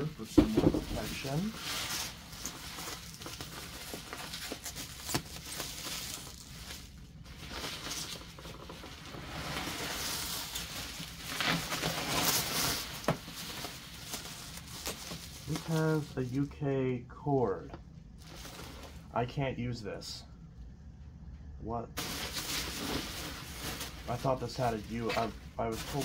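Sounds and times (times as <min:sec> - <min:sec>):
bubble wrap rustling and crinkling: 0:00.0 - 0:16.5, 0:18.2 - 0:19.1, 0:22.0 - 0:26.0.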